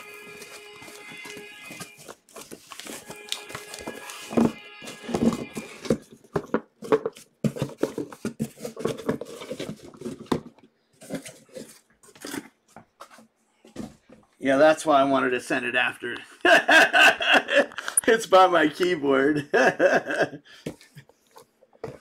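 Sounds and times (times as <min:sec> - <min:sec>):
cardboard scraping and rustling: 0:00.0 - 0:14.2
boxes knocking and thumping: 0:00.4 - 0:14.3, 0:21.8 - 0:22.0.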